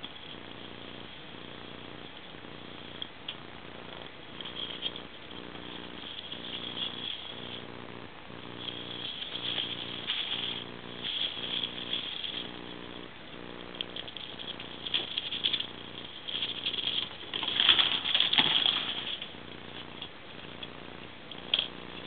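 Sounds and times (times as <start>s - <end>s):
plastic and foil crinkling: 4.3s - 7.7s, 8.5s - 20.8s.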